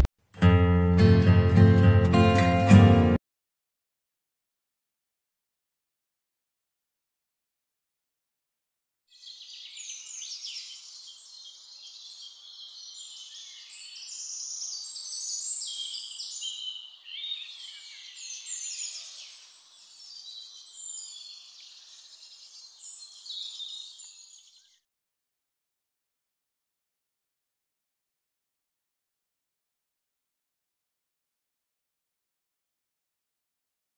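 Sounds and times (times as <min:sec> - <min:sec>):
songbirds chirping and trilling: 0:09.1 - 0:24.9.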